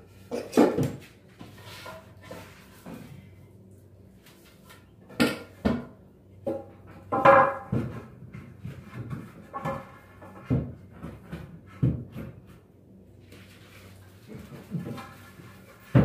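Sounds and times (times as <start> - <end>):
wooden boards knocking and clattering: 5.2 - 12.5.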